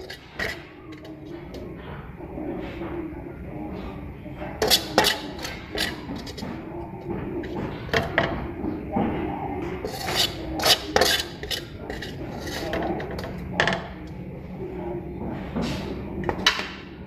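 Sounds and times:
spatula scraping metal pan: 0:00.0 - 0:01.7, 0:04.5 - 0:06.7, 0:09.8 - 0:14.0.

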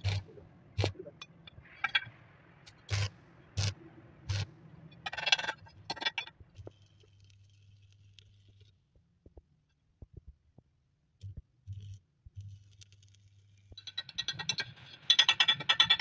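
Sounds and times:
arc welding crackle: 0:06.6 - 0:08.7, 0:11.7 - 0:13.8.

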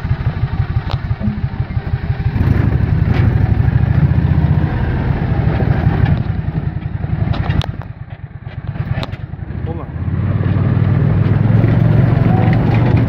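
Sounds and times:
vehicle engine rumbling: 0:00.0 - 0:13.0.

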